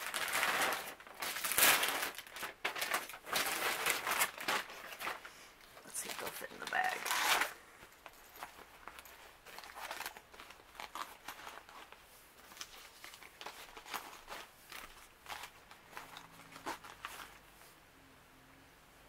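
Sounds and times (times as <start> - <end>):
foil sachets crinkling: 0.0 - 17.5.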